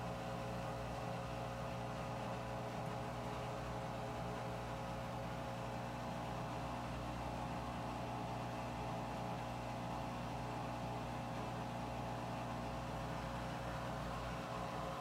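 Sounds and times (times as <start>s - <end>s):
washing machine running: 0.0s - 15.0s.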